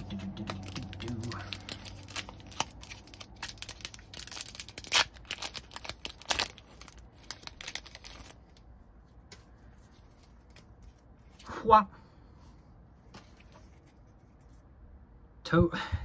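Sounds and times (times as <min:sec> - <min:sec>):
foil wrapper tearing and crinkling: 0:00.0 - 0:08.6.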